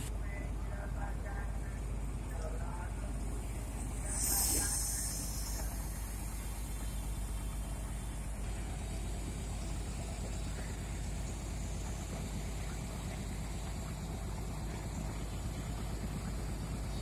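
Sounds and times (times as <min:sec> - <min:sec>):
diesel engine running: 0:00.0 - 0:17.0
sharp hiss: 0:04.0 - 0:07.6.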